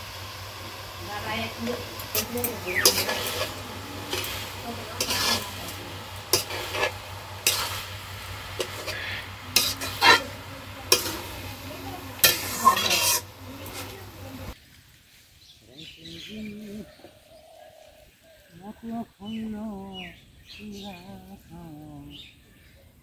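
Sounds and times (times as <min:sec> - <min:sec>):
frying sizzle: 0:00.0 - 0:15.6
metal spatula scraping rice: 0:01.6 - 0:14.5.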